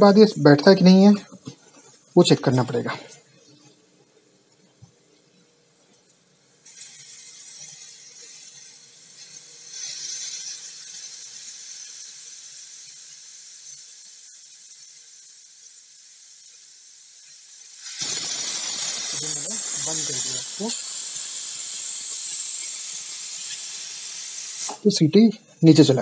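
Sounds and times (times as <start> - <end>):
pressure cooker hissing: 6.4 - 25.1.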